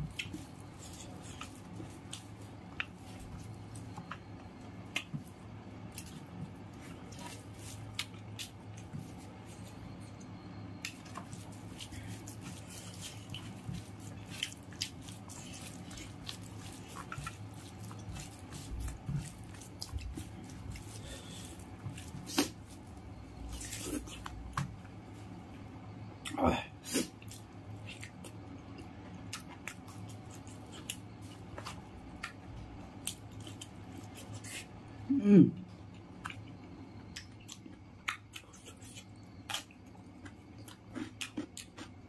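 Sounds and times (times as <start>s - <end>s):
wet chewing and mouth clicks: 0.0s - 24.9s, 26.2s - 34.7s, 35.9s - 42.0s
steady low hum: 0.0s - 42.0s.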